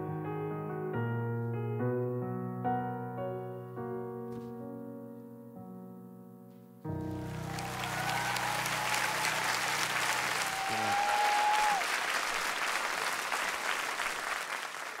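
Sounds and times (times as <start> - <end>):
audience applauding: 7.0 - 15.0.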